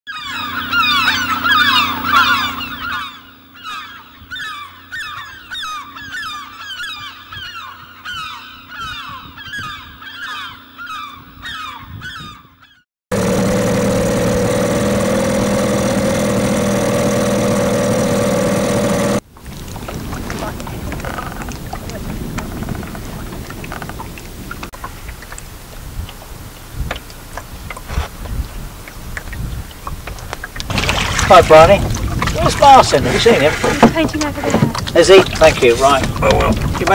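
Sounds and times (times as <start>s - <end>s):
outboard motor running: 0.1s - 3.6s, 13.1s - 36.9s
waterbirds honking: 0.1s - 27.9s, 28.8s - 36.9s.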